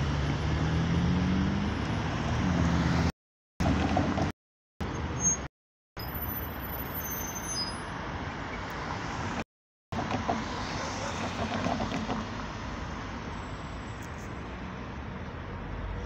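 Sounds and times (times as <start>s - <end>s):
cars driving past: 0.0s - 5.2s, 10.0s - 16.0s.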